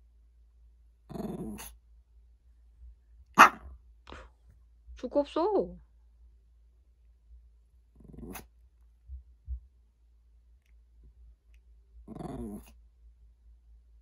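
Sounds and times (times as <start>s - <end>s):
small dog barking: 3.4s - 3.7s.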